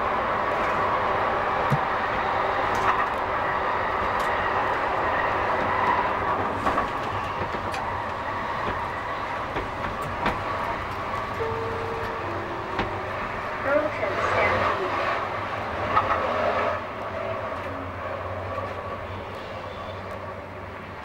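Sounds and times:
wheels rumbling on rail: 0.0 - 21.0
clicks over rail joints: 4.0 - 13.6.

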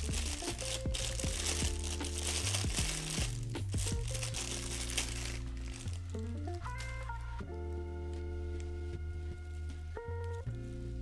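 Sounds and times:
plastic bag crinkling: 0.0 - 7.3
background music with bass: 0.0 - 11.0.

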